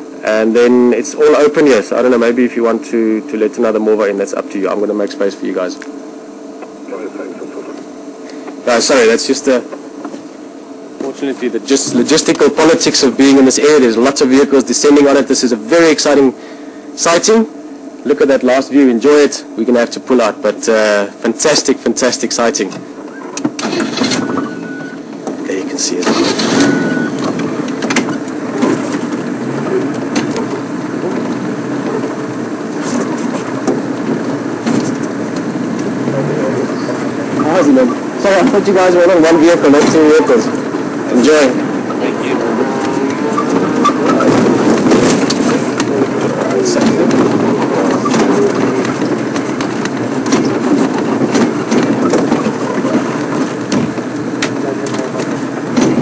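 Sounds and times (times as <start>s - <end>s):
vehicle engine running: 22.8s - 56.0s
vehicle knocks and rattles: 23.4s - 36.3s, 37.0s - 56.0s.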